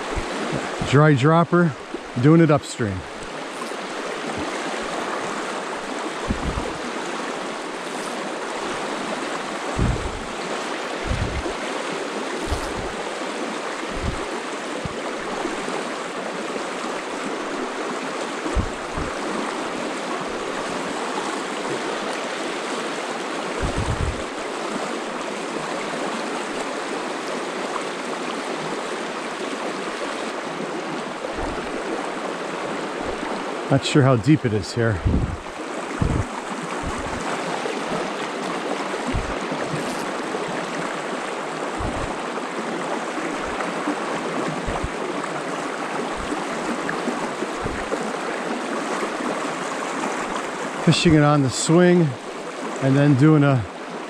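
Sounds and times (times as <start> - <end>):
short low thumps: 0.0 - 1.0, 6.2 - 6.8, 9.8 - 10.4, 11.0 - 11.6, 12.4 - 13.0, 13.9 - 15.0, 18.5 - 19.2, 23.6 - 24.4, 31.4 - 31.8, 35.0 - 37.3, 39.1 - 40.1, 41.8 - 42.2, 44.6 - 45.0, 46.2 - 46.4, 47.6 - 48.0
stream rushing over rocks: 0.0 - 54.0.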